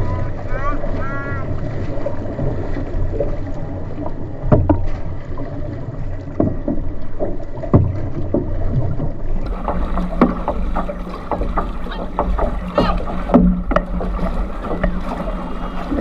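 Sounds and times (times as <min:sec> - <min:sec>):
paddles splashing in water: 0:00.0 - 0:16.0.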